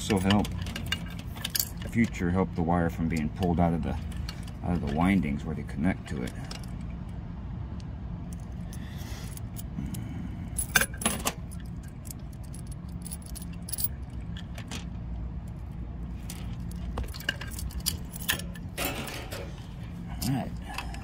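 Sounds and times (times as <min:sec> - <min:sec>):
low machinery hum: 0:00.0 - 0:21.0
small metal clicks and clinks: 0:10.6 - 0:14.9.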